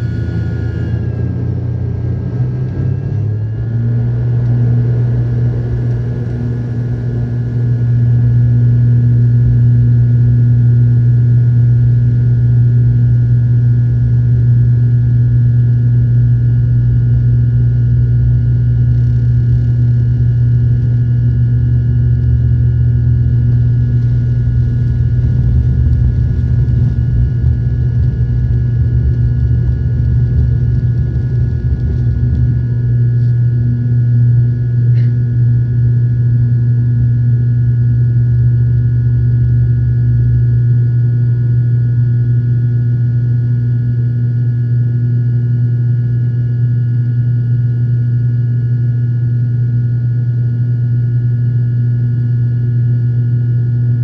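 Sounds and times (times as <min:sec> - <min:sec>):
high turbine whine: 0:00.0 - 0:42.5
propeller drone: 0:00.0 - 0:47.0.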